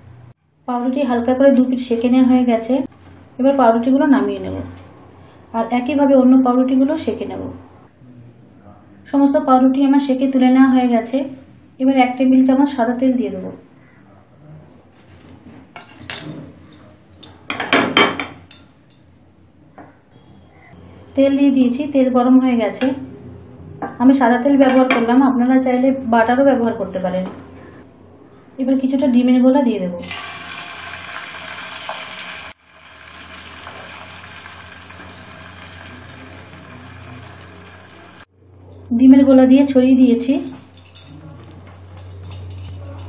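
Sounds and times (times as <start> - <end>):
frying pan and utensils clattering: 17.2 - 19.0, 40.3 - 43.0
egg mixture sizzling in oil: 30.0 - 38.3.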